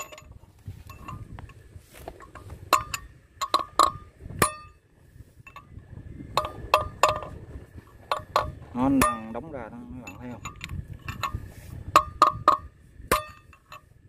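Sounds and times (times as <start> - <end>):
hammer striking steel drift: 2.6 - 4.8, 11.2 - 13.9.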